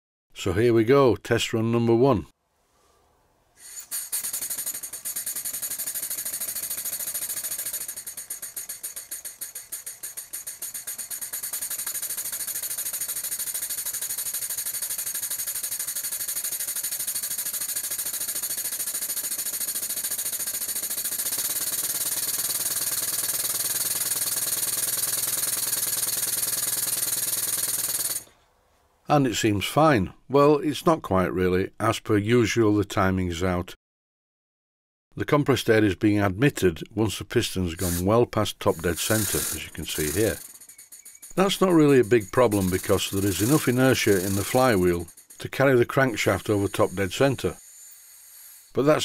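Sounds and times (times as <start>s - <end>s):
model steam engine exhaust chuffing: 3.6s - 28.3s, 37.7s - 49.0s.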